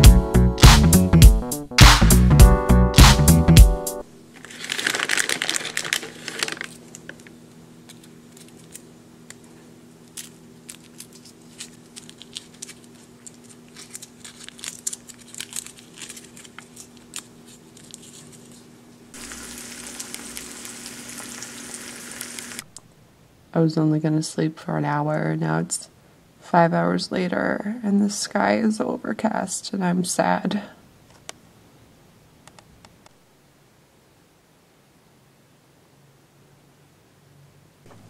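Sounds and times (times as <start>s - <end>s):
music: 0.0s - 4.1s
plastic wrapper crinkling: 4.3s - 22.7s
eggs sizzling in a frying pan: 19.2s - 22.6s.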